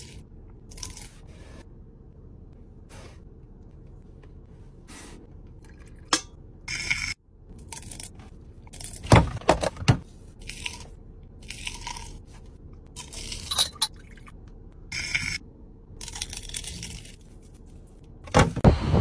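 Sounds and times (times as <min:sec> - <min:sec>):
fried pastry crunching: 0:16.0 - 0:17.6.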